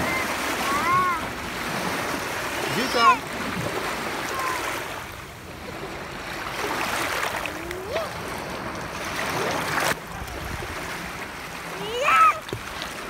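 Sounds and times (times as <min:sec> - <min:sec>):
small waves on a pebbly shore: 0:00.0 - 0:13.0.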